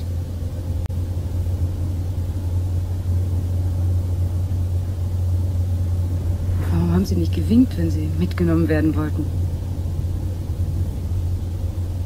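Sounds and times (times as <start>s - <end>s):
car engine and road drone: 0.0s - 12.0s.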